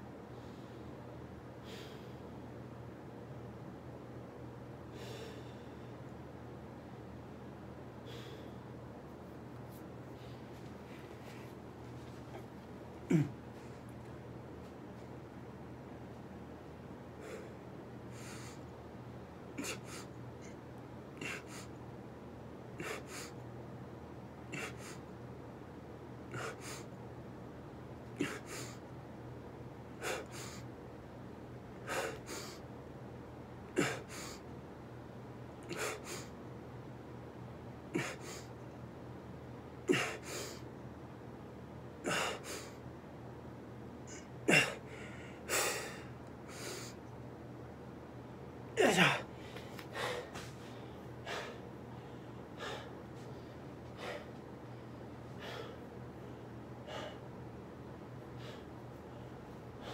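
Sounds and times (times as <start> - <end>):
man breathing hard: 1.6 - 2.3, 4.9 - 6.1, 8.0 - 8.8, 17.2 - 18.7, 22.8 - 23.4, 24.5 - 25.0, 26.3 - 26.9, 28.2 - 28.8, 30.0 - 30.7, 31.8 - 32.6, 33.7 - 34.4, 35.7 - 36.4, 37.9 - 38.6, 39.9 - 40.7, 42.0 - 42.8, 44.1 - 47.0, 48.8 - 57.4, 58.2 - 59.9.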